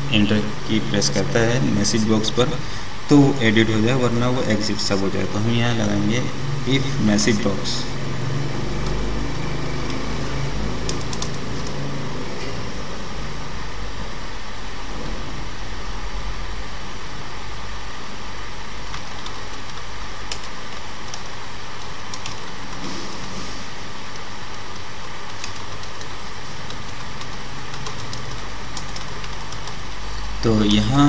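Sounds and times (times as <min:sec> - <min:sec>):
background hiss and hum: 0:00.0 - 0:31.0
computer keyboard typing clicks: 0:10.8 - 0:11.8, 0:18.9 - 0:22.8, 0:24.1 - 0:30.4.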